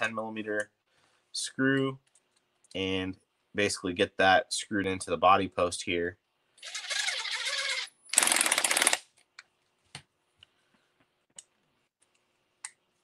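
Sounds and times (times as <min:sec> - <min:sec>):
power screwdriver running: 0:06.7 - 0:09.0.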